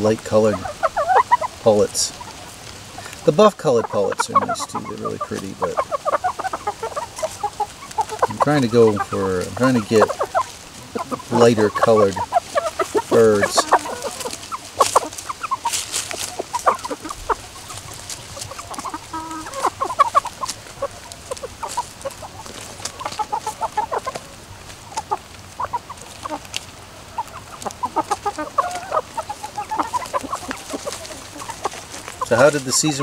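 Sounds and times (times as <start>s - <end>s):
chickens clucking: 0.0s - 33.0s.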